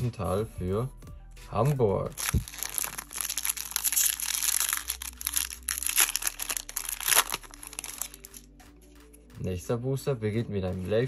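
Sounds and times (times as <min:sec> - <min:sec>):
wrapper crinkling and tearing: 0:02.1 - 0:08.5.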